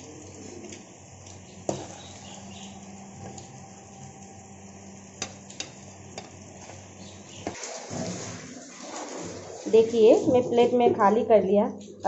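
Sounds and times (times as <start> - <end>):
low hum: 1.0 - 7.5
spoon scraping metal pan: 1.7 - 2.4.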